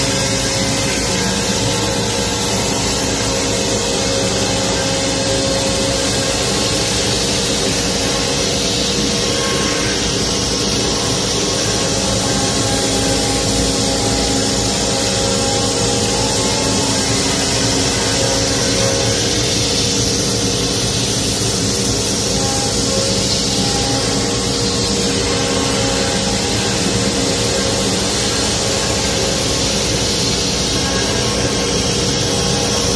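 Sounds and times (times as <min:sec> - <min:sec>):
router spindle cutting wood: 0:00.0 - 0:32.9.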